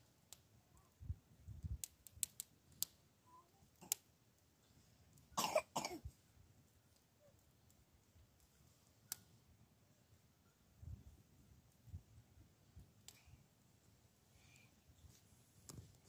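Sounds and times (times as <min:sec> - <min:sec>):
person coughing: 0:05.4 - 0:06.0.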